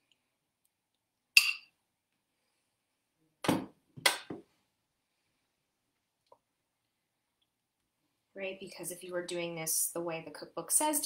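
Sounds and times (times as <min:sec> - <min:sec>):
spoon clinking on metal pan: 0:01.4 - 0:01.7.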